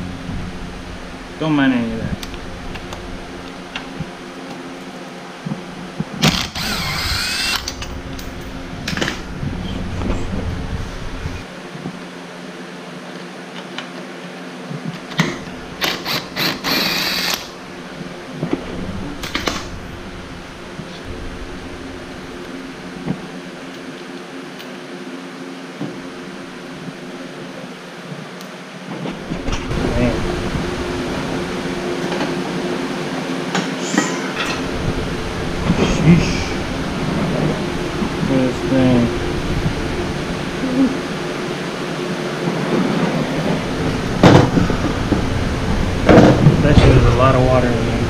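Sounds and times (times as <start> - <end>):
steady low hum: 0.0 - 48.0
cordless power tool whirring: 6.2 - 8.0, 15.8 - 17.6.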